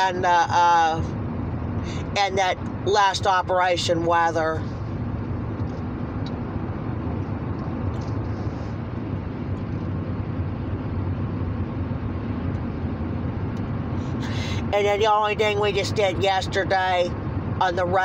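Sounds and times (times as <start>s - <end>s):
car cabin road noise: 0.0s - 18.0s.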